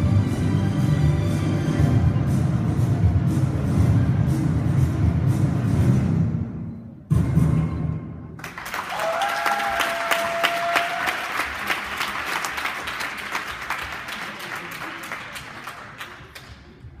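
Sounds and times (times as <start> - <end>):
audience applause: 8.4 - 16.8.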